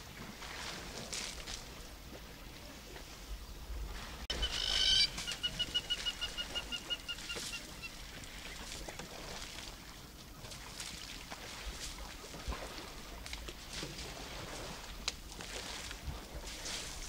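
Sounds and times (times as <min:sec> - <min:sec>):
bird calling rapid short notes: 0:04.3 - 0:07.6.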